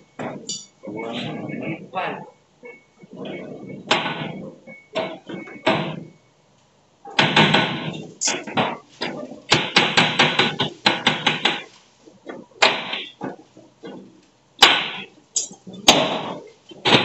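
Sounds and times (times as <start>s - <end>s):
metal knocks and clanks: 2.6s - 6.2s, 7.1s - 17.0s.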